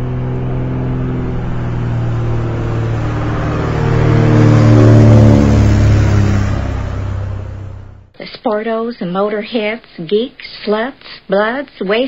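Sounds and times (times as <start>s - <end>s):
model airplane engine revving: 0.0s - 7.8s.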